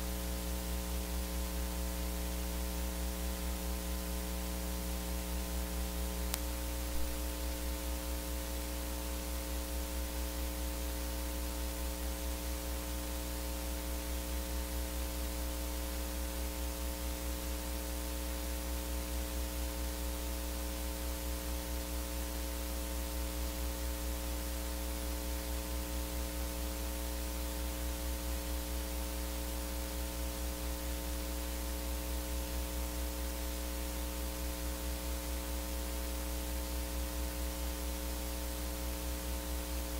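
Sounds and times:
electrical mains hum: 0.0 - 39.9
static hiss: 0.0 - 39.9
faint click: 6.3 - 7.2.

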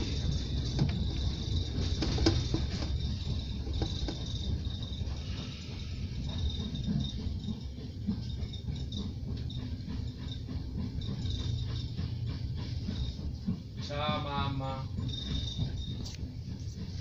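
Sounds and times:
train wheels rumbling on rail: 0.0 - 17.0
thin high squeal: 10.3 - 16.2.

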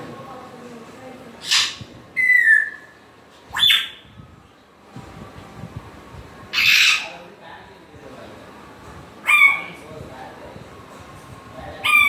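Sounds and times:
parrot squawking: 1.4 - 4.0, 6.5 - 7.2, 9.2 - 9.8
parrot whistling: 1.4 - 4.0, 6.5 - 7.1, 9.2 - 9.8.

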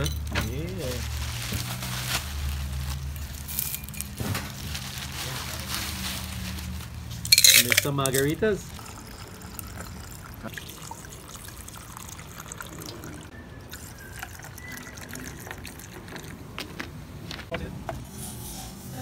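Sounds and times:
drinks poured over ice: 7.3 - 16.4.

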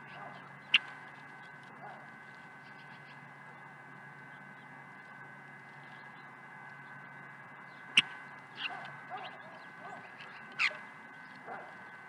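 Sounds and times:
faint steady whine: 0.0 - 12.0
songbird calls and chips: 7.6 - 12.0.

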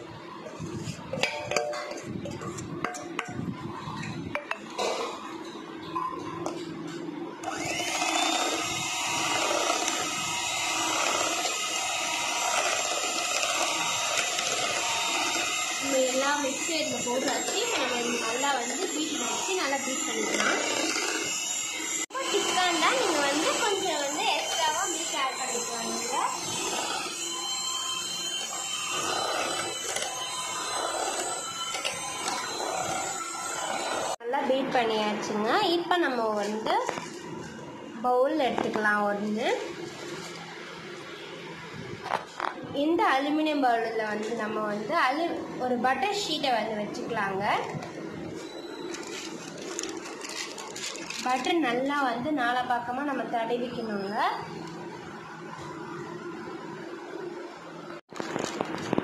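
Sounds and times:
electric hand mixer whining: 7.4 - 34.2, 46.1 - 51.8.

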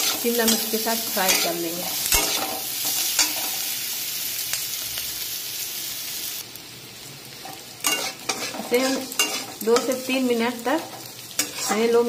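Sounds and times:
food sizzling in oil: 0.0 - 12.0
spatula scraping pan: 7.8 - 9.9, 10.8 - 12.0.

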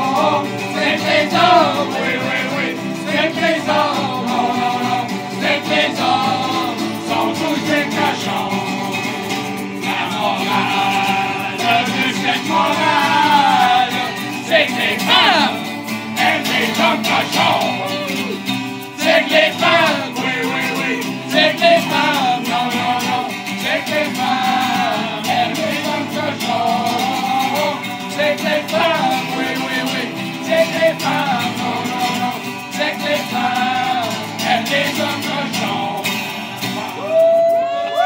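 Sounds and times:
men singing together: 0.0 - 37.0
strummed acoustic guitar: 0.0 - 38.0.

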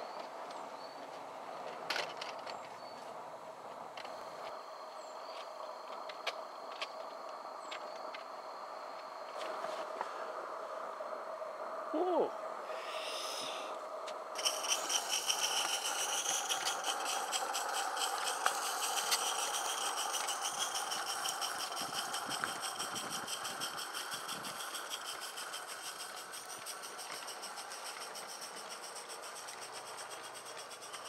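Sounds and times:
steam locomotive chuffing: 14.3 - 31.0.

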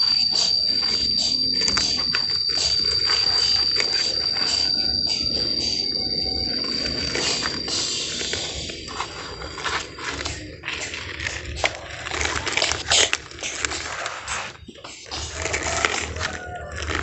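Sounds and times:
toy excavator scraping sand: 6.6 - 17.0.

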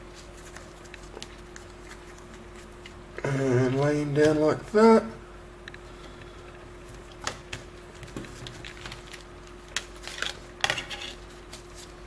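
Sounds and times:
faint steady hum: 0.0 - 12.0
tape clicks and rustles: 6.9 - 11.9.

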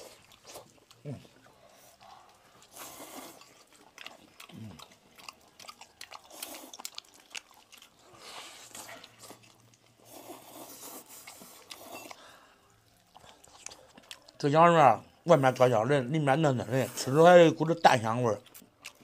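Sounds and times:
noodles slurped: 0.0 - 14.5
biting and chewing: 0.0 - 14.7, 16.7 - 19.0.

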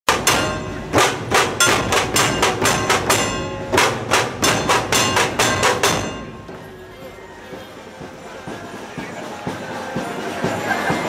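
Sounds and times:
barrel drums struck with sticks: 0.1 - 6.7
metallic ring: 0.2 - 7.2.

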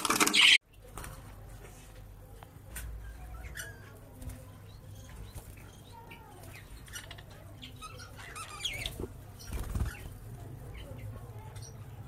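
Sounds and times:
budgerigars chirping and chattering: 0.2 - 0.6, 2.9 - 12.0.

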